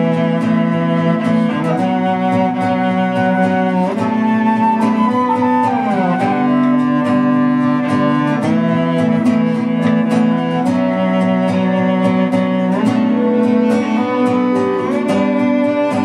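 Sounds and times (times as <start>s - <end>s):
acoustic guitar strummed: 0.0s - 16.0s
bowed cello: 0.0s - 16.0s
held melody line: 0.0s - 16.0s.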